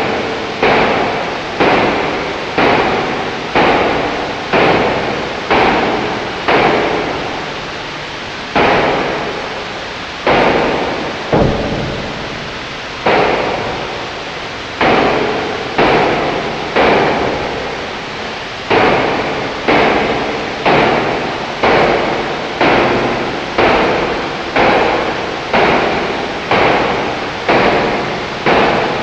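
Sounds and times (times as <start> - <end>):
loud reverberant hits: 8.5 - 16.4.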